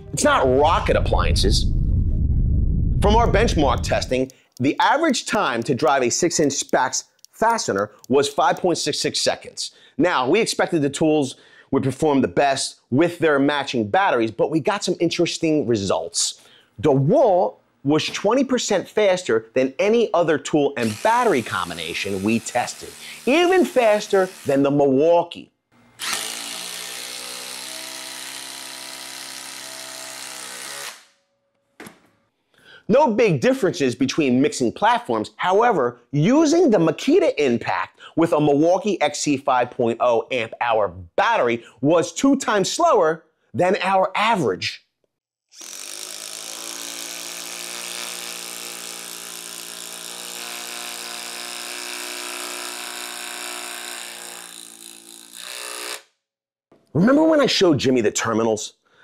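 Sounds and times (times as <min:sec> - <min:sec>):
impact driver rattling buzz: 0:25.8 - 0:31.1.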